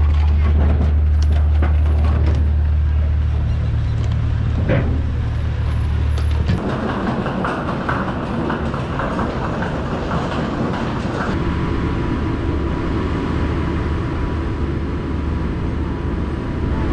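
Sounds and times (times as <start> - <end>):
steady low rumble: 0.0 - 6.8, 10.7 - 16.9
luggage trolleys rattling: 0.0 - 11.4.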